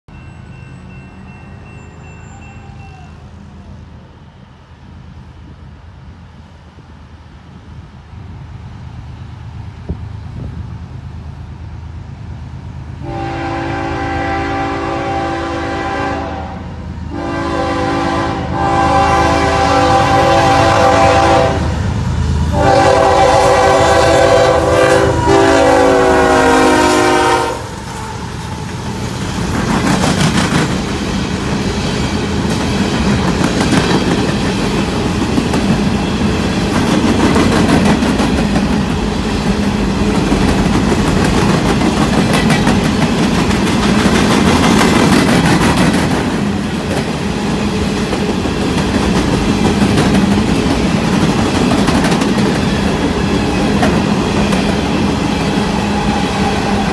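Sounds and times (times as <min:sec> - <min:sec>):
diesel locomotive rumble: 0:02.3 - 0:56.9
multi-note air horn blasts: 0:13.0 - 0:21.8, 0:22.5 - 0:27.8
train wheels clattering: 0:22.4 - 0:56.9.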